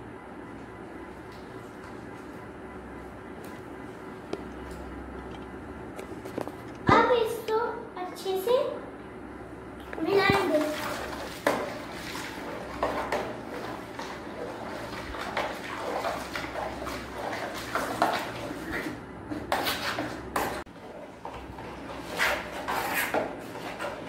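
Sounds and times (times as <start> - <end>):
water swishing and sloshing in tub: 0.6 - 4.0, 9.8 - 24.0.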